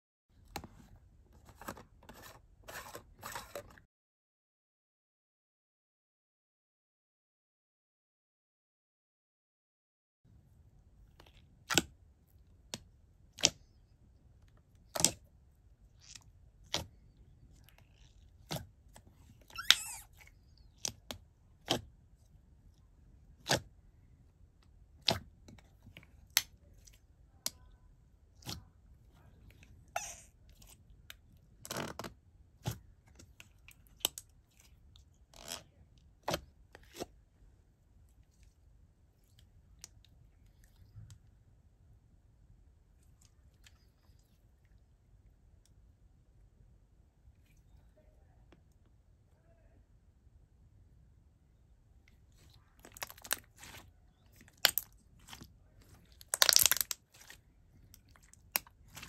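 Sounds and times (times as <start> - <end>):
fingers squelching wet slime: 11.1 - 23.8, 24.6 - 37.2, 52.1 - 59.0.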